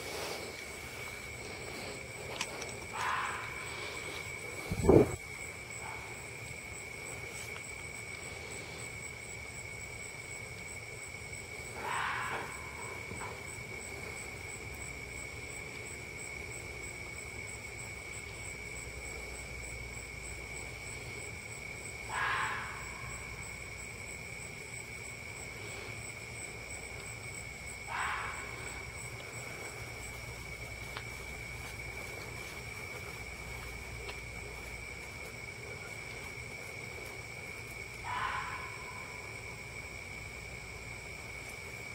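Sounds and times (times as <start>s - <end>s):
insects droning: 0.0s - 41.9s
fox barking: 2.8s - 5.2s, 5.8s - 6.2s, 11.7s - 13.4s, 22.0s - 23.4s, 27.8s - 30.2s, 38.0s - 39.3s.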